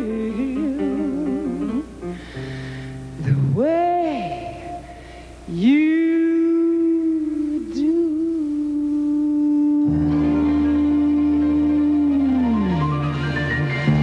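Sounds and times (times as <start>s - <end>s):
woman singing long note: 5.5s - 12.9s
backing band with bass: 9.8s - 14.0s.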